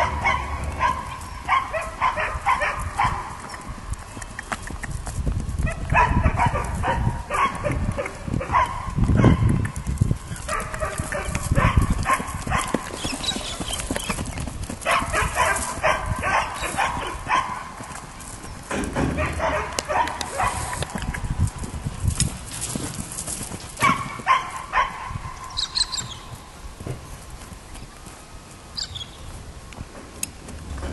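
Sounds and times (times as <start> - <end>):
dog barking: 0.0 - 3.4, 5.7 - 9.5, 10.5 - 12.8, 14.8 - 17.8, 19.1 - 20.9, 23.8 - 25.3
horse hoofbeats on hard ground: 0.0 - 30.9.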